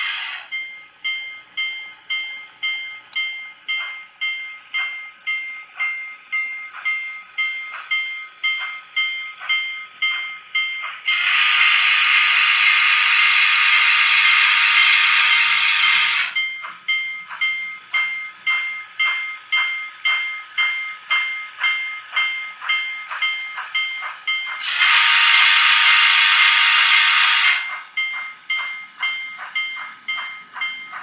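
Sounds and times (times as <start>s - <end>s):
locomotive bell ringing: 0.0s - 31.0s
steam whistle blast: 11.1s - 16.4s, 24.6s - 27.7s.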